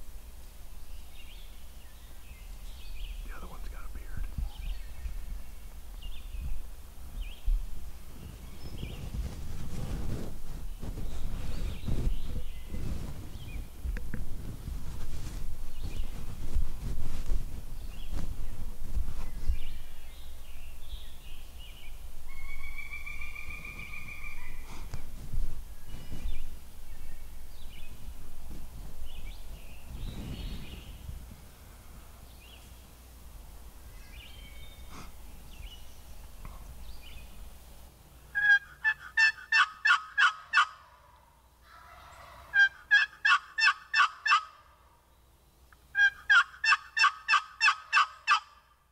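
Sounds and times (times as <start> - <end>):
turkey gobbling: 38.4 - 44.7, 45.9 - 48.6.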